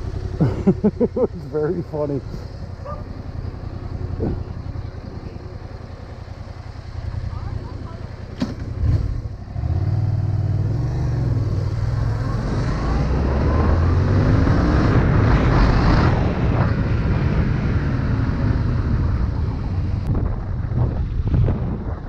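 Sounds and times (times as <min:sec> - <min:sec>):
motorcycle engine running: 0:00.0 - 0:13.4.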